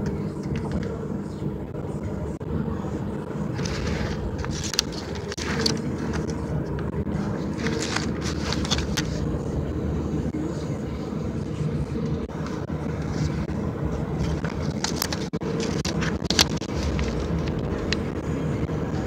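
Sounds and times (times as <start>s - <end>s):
low rumble: 1.6s - 19.0s
paper bill crackling: 3.6s - 6.4s, 7.4s - 9.3s, 14.2s - 18.1s.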